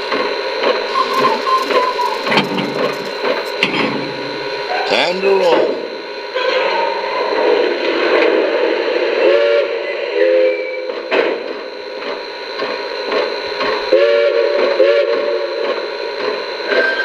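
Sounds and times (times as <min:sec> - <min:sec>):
steam whistle toots: 0:00.8 - 0:03.4, 0:06.4 - 0:11.0, 0:13.8 - 0:15.7, 0:16.6 - 0:17.0.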